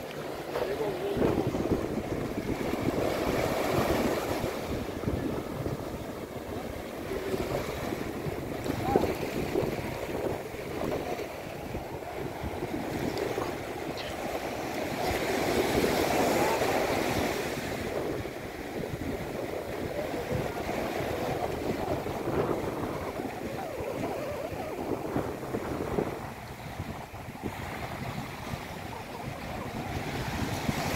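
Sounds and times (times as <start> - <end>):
sea surf breaking: 0.0 - 30.9
wind buffeting microphone: 0.0 - 30.9.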